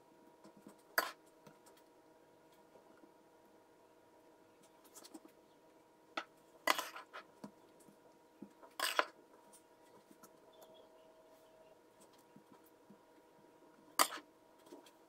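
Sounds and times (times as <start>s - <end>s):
faint steady hum: 0.0s - 15.0s
metal spatula scraping dishes: 6.7s - 7.2s, 8.8s - 9.1s, 14.0s - 14.2s.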